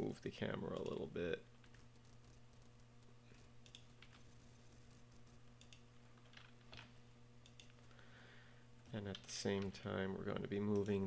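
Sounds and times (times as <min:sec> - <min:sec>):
low electrical hum: 0:00.0 - 0:11.0
faint computer clicks: 0:01.6 - 0:04.4, 0:05.2 - 0:07.9, 0:10.7 - 0:11.0.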